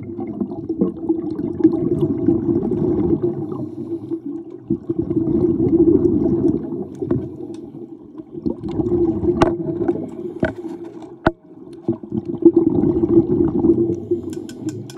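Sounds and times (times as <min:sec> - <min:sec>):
underwater bubbles gurgling: 0:00.0 - 0:14.9
sharp clicks: 0:14.3 - 0:14.9.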